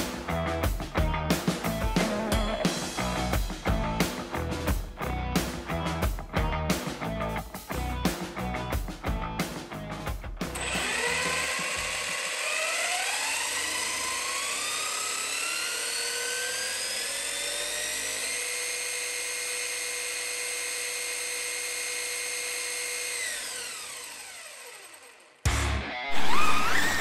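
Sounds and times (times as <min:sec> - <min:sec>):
electric motor whine: 0:10.6 - 0:25.4.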